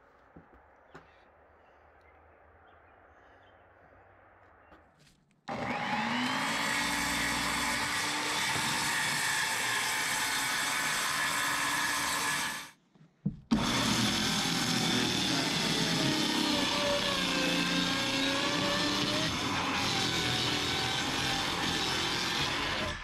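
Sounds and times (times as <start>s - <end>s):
power tool motor whining: 5.5s - 12.7s, 13.5s - 23.0s.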